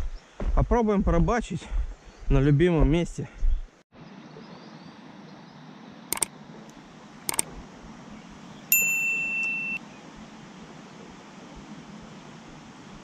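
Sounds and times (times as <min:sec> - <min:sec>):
short sharp clicks: 0:06.1 - 0:06.3, 0:07.3 - 0:07.5
bright electronic ding: 0:08.7 - 0:09.8.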